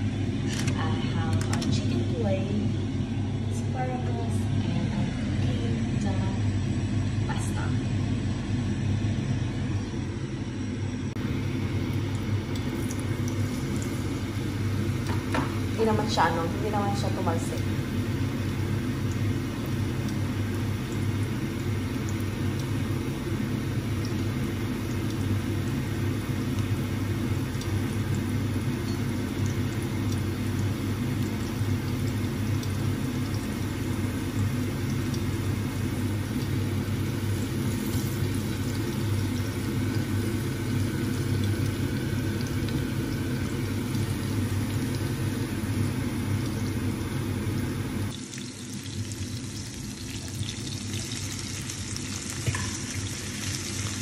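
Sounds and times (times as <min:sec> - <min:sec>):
onion sizzling in hot oil: 0:11.2 - 0:54.0.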